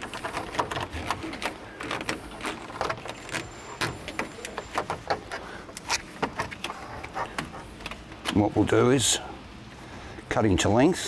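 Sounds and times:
plastic conduit clicking and rattling: 0.0s - 8.4s.

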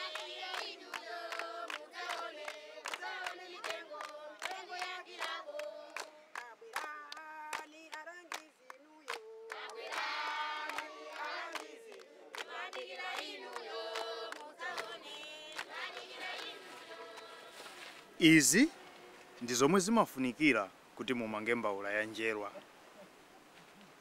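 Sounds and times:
group of voices singing: 0.0s - 18.0s.

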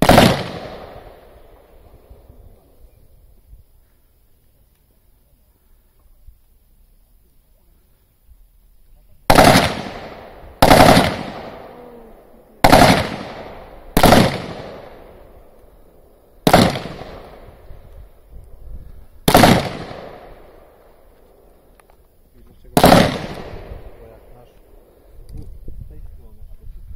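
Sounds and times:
rifle shots echoing: 0.0s - 2.7s, 9.3s - 17.7s, 19.2s - 21.6s, 22.6s - 25.0s.

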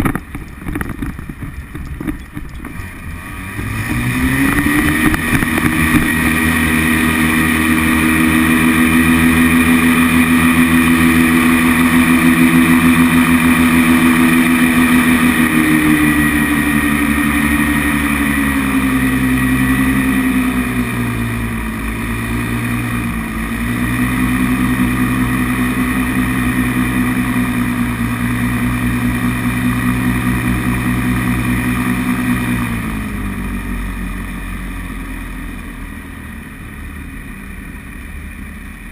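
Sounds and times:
paramotor engine and propeller: 0.0s - 38.9s.

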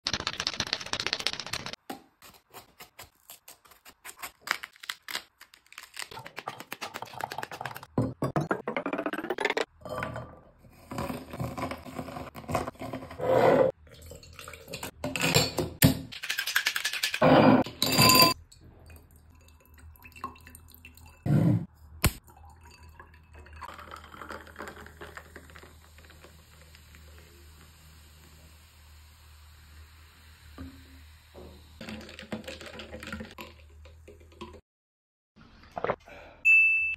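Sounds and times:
ice rattling in cocktail shaker: 0.1s - 1.8s, 5.6s - 7.9s, 16.1s - 18.4s, 22.6s - 26.6s, 31.8s - 33.8s
grape clinking in glass cup: 17.7s - 18.4s
soda pouring into glass: 22.2s - 31.1s
soda fizzing and crackling: 22.4s - 33.8s.

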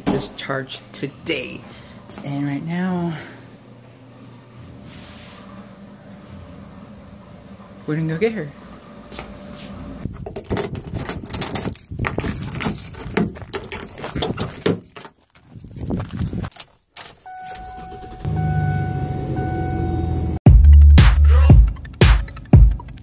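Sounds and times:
keys jangling: 10.2s - 17.8s
repeating warning chime: 17.2s - 20.4s
car engine starting: 17.4s - 23.0s.

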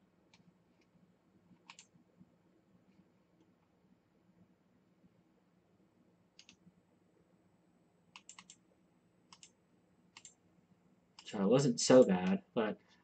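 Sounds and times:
computer mouse clicks: 1.6s - 1.9s, 6.4s - 6.6s, 8.1s - 8.6s, 9.3s - 10.4s.

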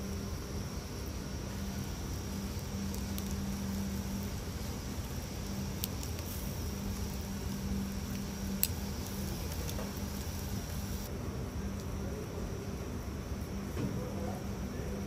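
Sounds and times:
low rumble and hum: 0.0s - 13.8s
metal tongs clicking on grill grate: 2.5s - 3.5s, 5.6s - 7.2s, 8.0s - 10.4s.

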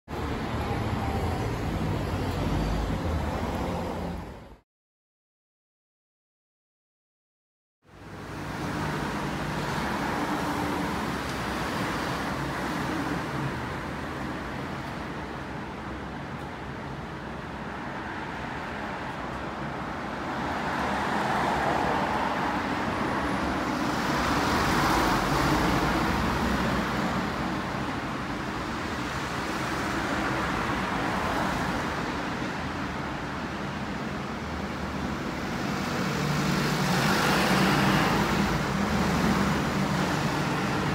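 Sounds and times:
passing cars hum: 7.9s - 40.9s.

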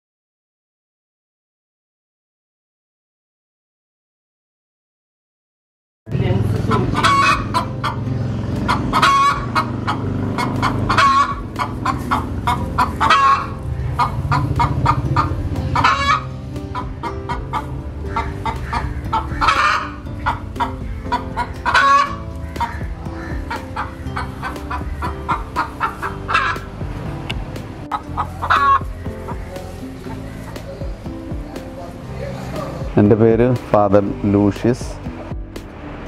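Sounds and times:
chicken clucking: 6.7s - 8.0s, 8.6s - 26.7s, 27.9s - 31.0s.

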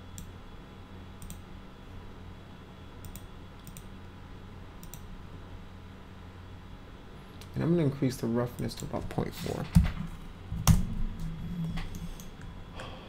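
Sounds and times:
steady low hum: 0.0s - 13.0s
computer mouse clicking: 1.2s - 1.4s, 3.0s - 3.9s, 4.8s - 5.1s.

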